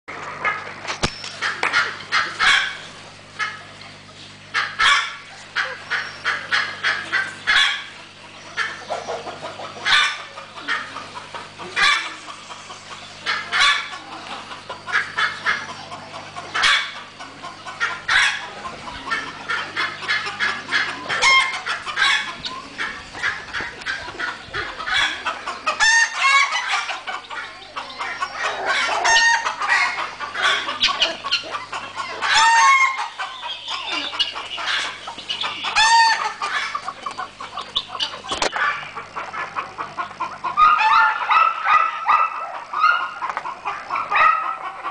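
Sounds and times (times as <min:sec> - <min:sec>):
chickens clucking: 0:00.1 - 0:44.9.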